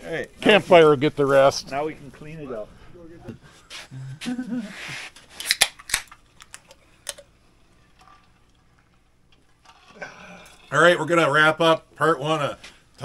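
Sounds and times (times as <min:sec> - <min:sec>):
metallic can clicks: 0:05.4 - 0:07.3.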